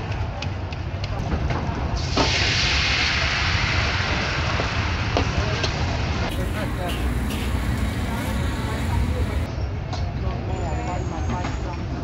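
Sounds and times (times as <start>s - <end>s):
background traffic rumble: 4.4s - 10.0s
frying sizzle: 6.3s - 9.5s.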